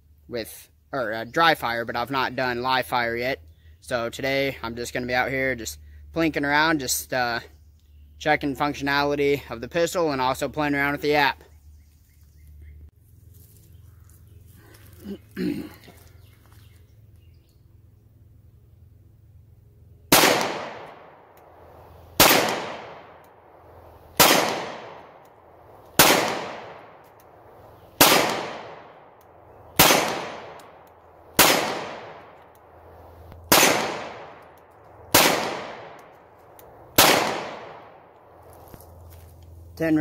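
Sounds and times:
pistol shots with echo: 20.1 - 25.2, 26.0 - 29.1, 29.7 - 36.2, 36.9 - 38.1.

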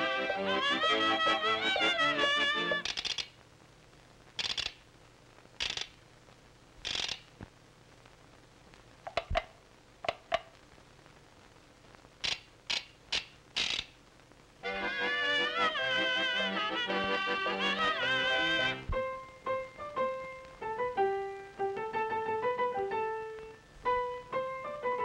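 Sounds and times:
band tune: 0.0 - 2.9, 14.6 - 21.9
ratchet-like rasping bursts: 2.7 - 3.3, 4.4 - 4.8, 5.6 - 6.0, 6.8 - 7.3, 12.2 - 13.9
sharp clicks: 2.8 - 3.4, 4.4 - 4.9, 5.6 - 6.0, 6.8 - 7.5, 12.2 - 14.0.

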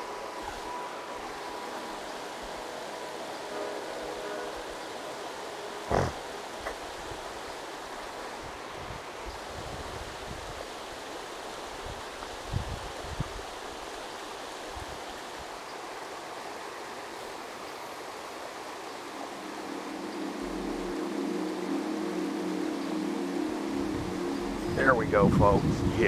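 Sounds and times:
river water flowing: 0.0 - 26.0
low hum of several tones: 19.0 - 26.0.

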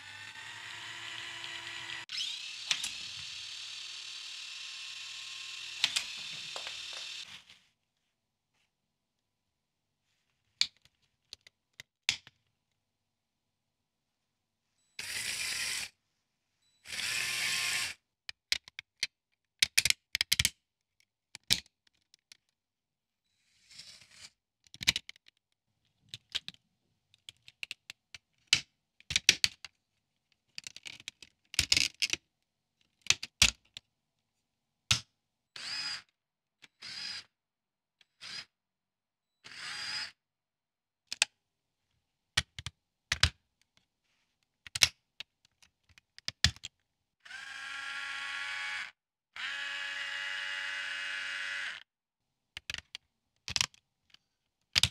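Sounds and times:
small electric motors whirring: 0.0 - 7.3, 15.0 - 15.9, 16.8 - 18.0, 35.6 - 36.1, 36.8 - 37.3, 39.4 - 40.2, 47.2 - 51.8
plastic parts clicking: 24.6 - 25.4, 26.1 - 29.7, 30.4 - 32.2, 44.6 - 46.8, 52.6 - 54.9.

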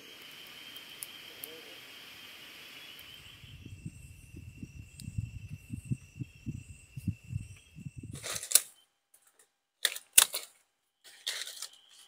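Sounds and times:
night insects trilling: 0.0 - 8.8, 11.0 - 12.0
low irregular rumble: 3.0 - 8.4
crunching rustles in dry leaves: 11.1 - 12.0.

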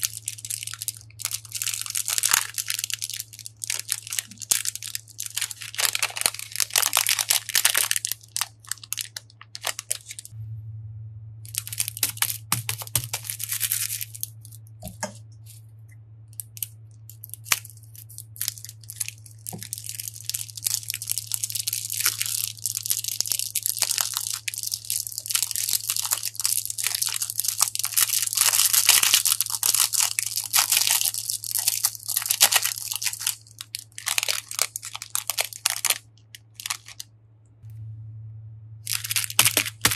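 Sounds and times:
plastic bags crinkling: 0.0 - 10.3, 11.5 - 15.6, 16.4 - 37.1, 38.9 - 39.9
water beads pouring into glass dish: 11.5 - 14.4, 17.2 - 36.0, 38.9 - 39.9.

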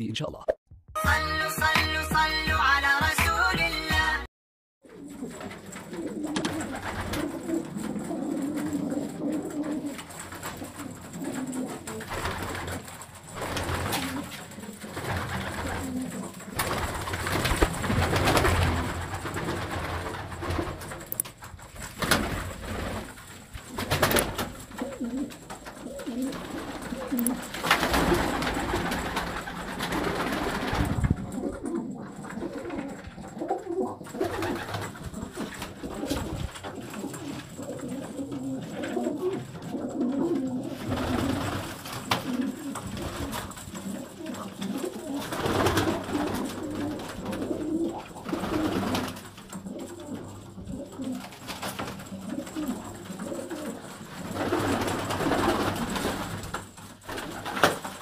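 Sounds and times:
pigeons cooing: 4.8 - 21.0, 21.9 - 57.9.

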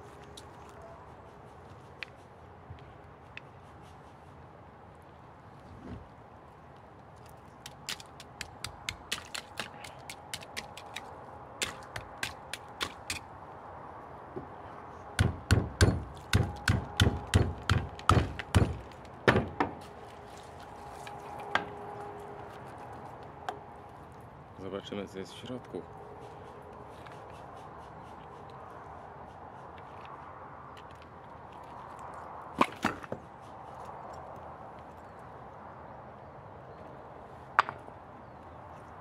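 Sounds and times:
knife chipping ice: 7.7 - 13.2.

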